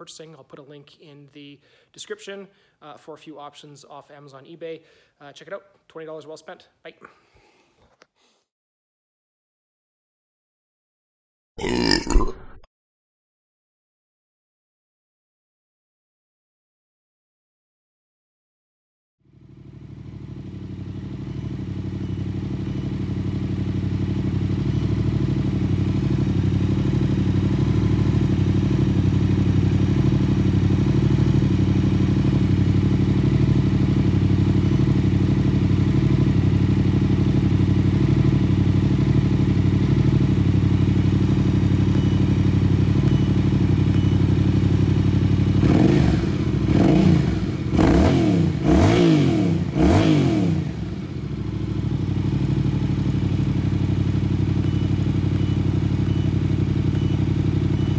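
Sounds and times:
motorcycle engine idling and revving: 19.2s - 57.9s.

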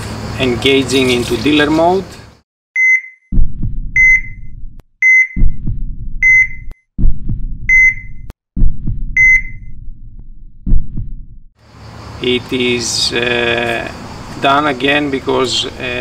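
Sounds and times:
low heartbeat: 3.3s - 11.5s
high electronic beeps: 4.0s - 6.8s, 7.7s - 8.3s, 9.2s - 9.8s.

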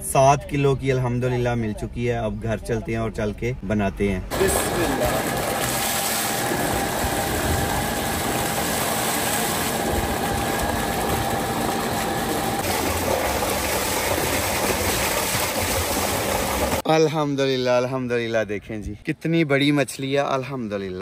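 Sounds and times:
machine hum: 4.3s - 16.8s
water gushing into a tank: 4.3s - 16.8s
fish splashing in water: 4.4s - 16.8s.

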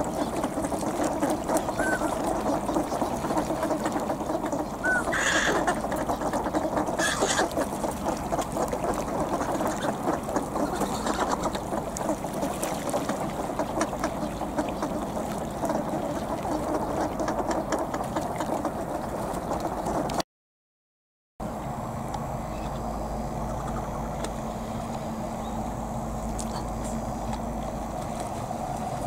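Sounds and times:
flock of ducks calling: 0.0s - 20.1s, 22.5s - 24.3s.

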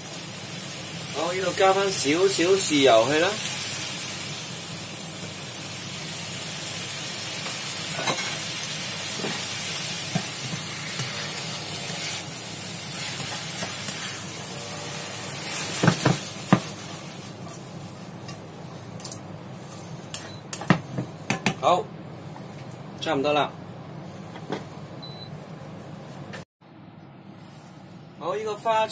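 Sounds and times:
food sizzling in a wok: 0.0s - 21.2s.

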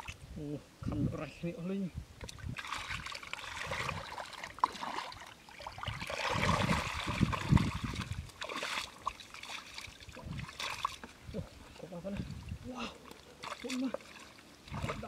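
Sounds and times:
hands splashing in muddy water: 2.3s - 11.1s, 13.2s - 15.0s.

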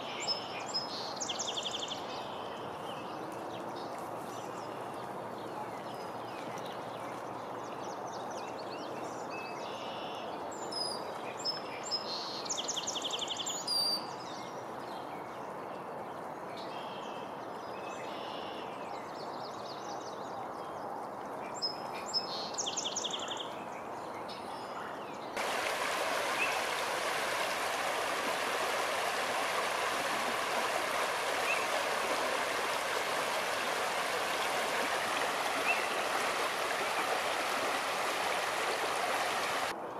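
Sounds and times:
water running over rocks: 25.4s - 39.7s.

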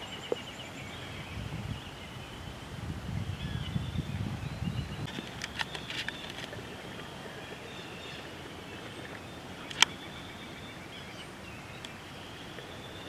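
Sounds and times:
distant bird calls: 0.0s - 13.0s
steady low hiss: 0.0s - 13.0s
sharp click: 9.7s - 10.0s.

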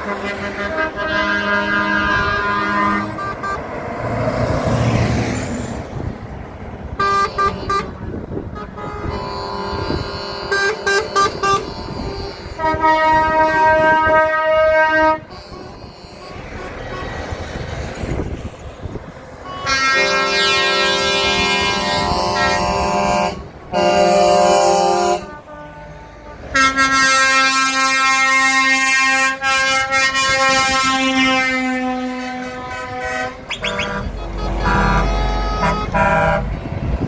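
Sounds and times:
truck air horns blasting: 0.0s - 4.0s, 6.9s - 18.2s, 19.3s - 37.0s
diesel engines driving by: 0.0s - 37.0s.

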